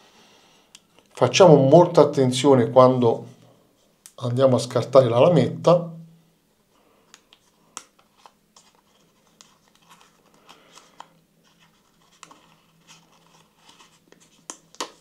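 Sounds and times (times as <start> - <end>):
paper wrapper crinkling: 8.0 - 15.0.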